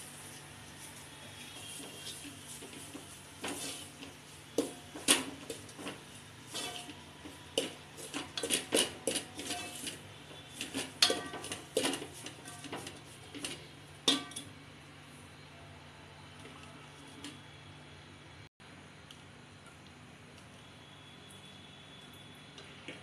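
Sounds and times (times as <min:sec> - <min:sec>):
utensils clattering on metal pot: 0:01.8 - 0:14.5.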